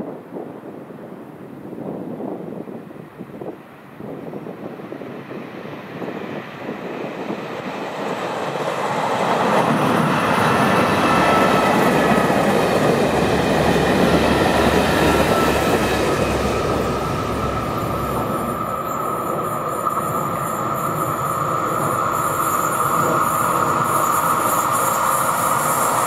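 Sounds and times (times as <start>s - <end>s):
train wheels rumbling on rails: 5.2s - 26.0s
thin high tone: 9.7s - 26.0s.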